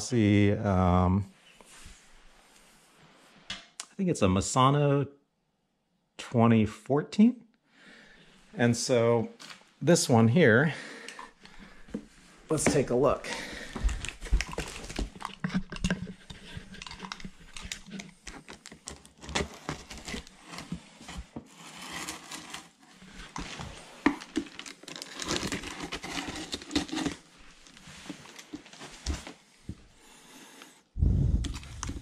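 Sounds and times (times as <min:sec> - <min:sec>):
packaging crinkling and rustling: 0:13.7 - 0:29.4.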